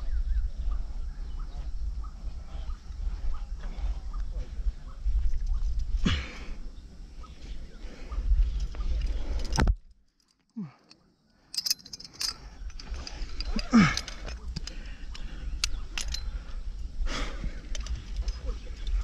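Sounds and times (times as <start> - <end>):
low microphone rumble: 0.0 - 9.8
climbing hardware jangling: 8.5 - 16.6, 17.4 - 19.0.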